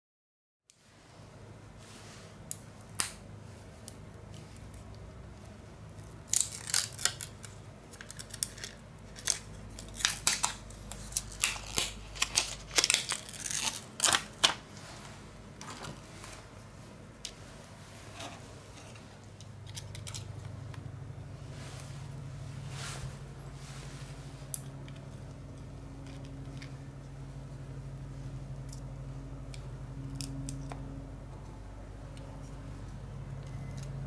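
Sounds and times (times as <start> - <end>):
low steady hum: 0.7 - 34.0.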